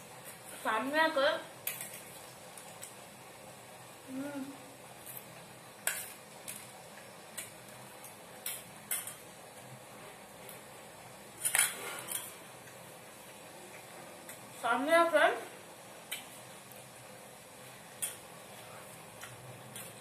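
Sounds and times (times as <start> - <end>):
person humming: 4.0 - 4.6.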